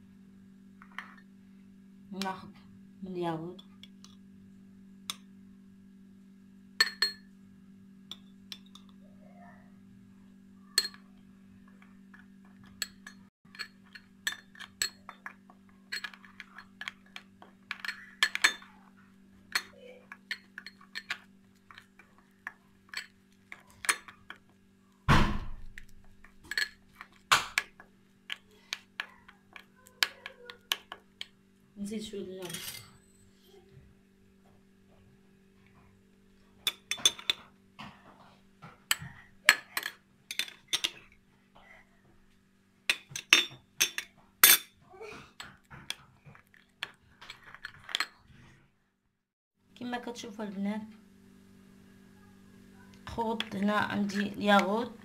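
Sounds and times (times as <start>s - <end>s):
low steady hum: 0.0s - 48.6s
spoon clinking against glass bowl: 6.8s - 7.3s, 10.7s - 11.2s, 12.6s - 18.8s, 19.5s - 21.9s, 42.9s - 44.7s.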